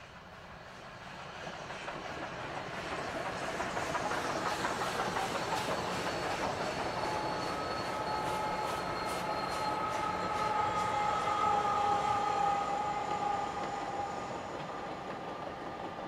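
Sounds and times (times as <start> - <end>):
steam hiss: 0.0 - 16.0
faint high squeal: 3.5 - 16.0.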